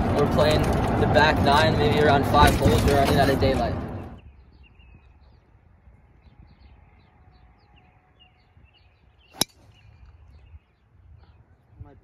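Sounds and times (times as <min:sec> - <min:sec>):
faint bird chirps: 0:04.2 - 0:12.0.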